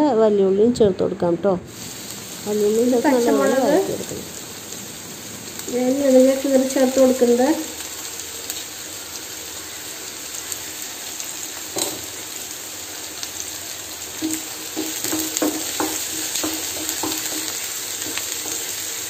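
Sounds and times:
onions sizzling in oil: 1.7s - 19.0s
wooden spatula knocking pan: 14.2s - 19.0s.

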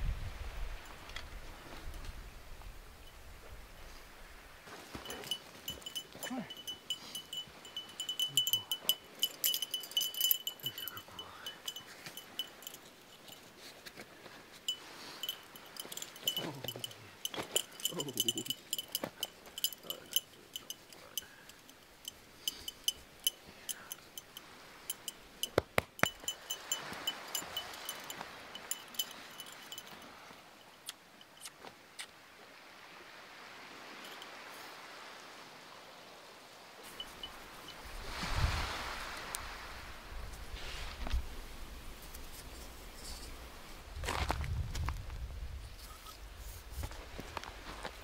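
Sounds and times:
metal dog tags jingling: 5.0s - 13.7s, 14.7s - 30.1s, 36.9s - 37.8s.

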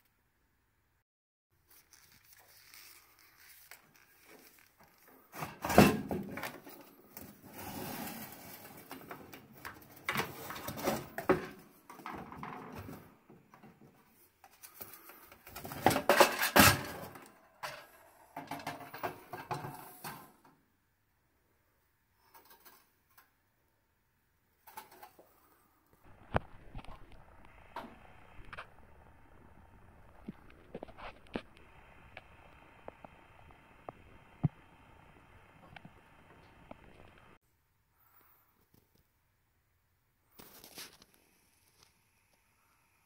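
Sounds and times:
metal parts knocking and clattering: 15.6s - 19.8s.

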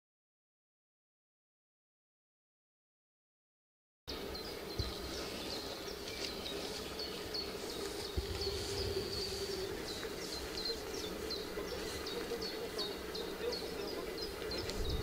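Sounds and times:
steady low hum: 4.1s - 15.0s.

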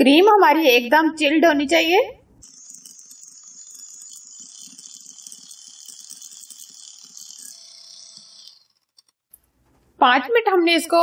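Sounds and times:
electric hand mixer whirring: 2.4s - 9.3s.

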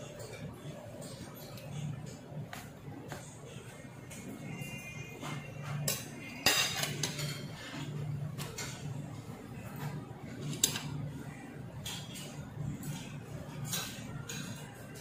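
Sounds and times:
cutlery clinking on plates: 4.1s - 9.0s, 9.6s - 11.1s, 11.8s - 15.0s.

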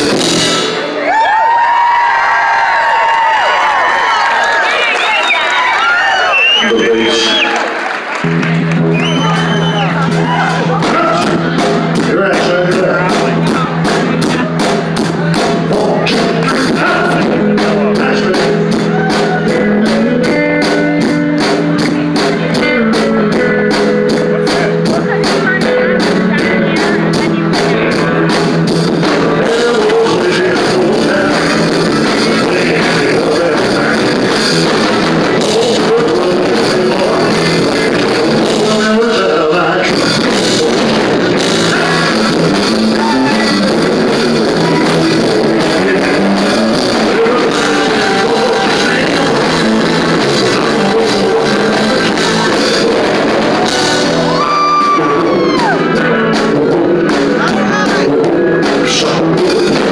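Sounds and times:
drum kit: 0.0s - 59.9s
electric guitar: 6.9s - 59.9s
man singing into a microphone: 10.5s - 14.4s, 15.6s - 20.8s, 22.4s - 28.4s, 29.0s - 59.9s.

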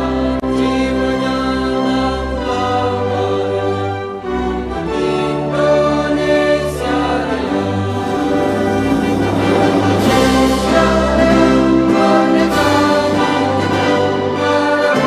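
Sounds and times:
women's choir singing: 0.0s - 15.0s
low sustained accompaniment: 4.2s - 15.0s.

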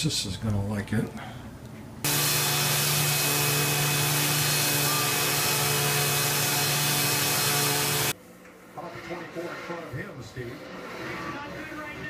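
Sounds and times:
orbital sander running: 2.1s - 8.2s.

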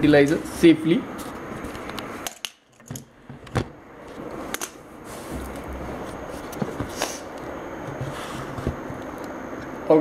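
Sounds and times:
camera handling knocks and rubs: 5.3s - 7.0s, 7.9s - 8.9s.

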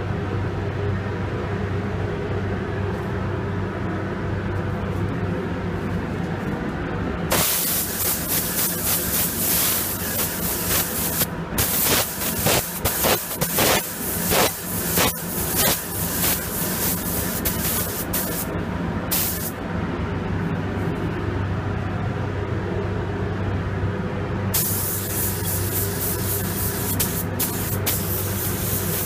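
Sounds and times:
low machine hum: 0.0s - 29.0s
spray gun hissing: 7.3s - 18.5s, 19.1s - 19.5s, 24.6s - 29.0s.

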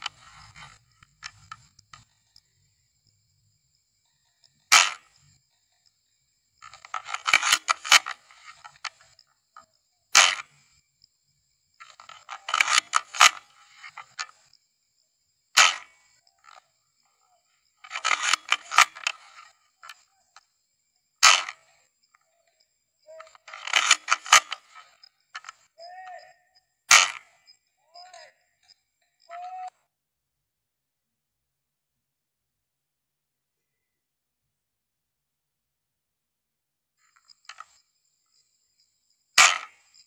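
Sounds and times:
airsoft rifle shots: 15.6s - 16.0s, 21.2s - 21.6s, 26.9s - 27.4s, 39.4s - 39.8s.

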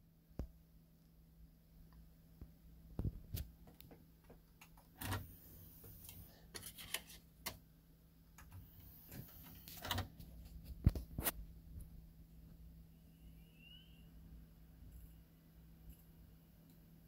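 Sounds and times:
disc tray mechanism clicks and whirs: 4.6s - 7.6s, 8.4s - 10.3s.

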